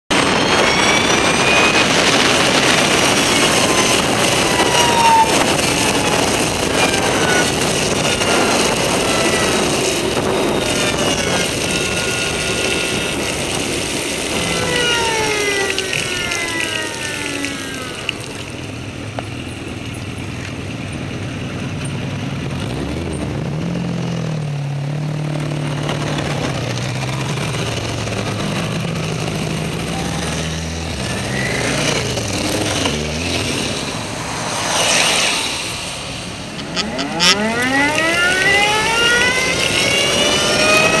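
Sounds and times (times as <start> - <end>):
motorcycle engine: 0.0 - 41.0
tyre noise on wet road: 0.1 - 41.0.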